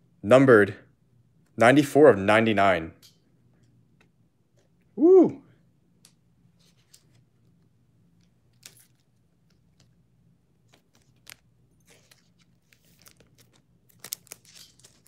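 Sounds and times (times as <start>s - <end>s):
faint room hum: 0.0s - 15.0s
trading cards clicking and rustling: 10.6s - 15.0s.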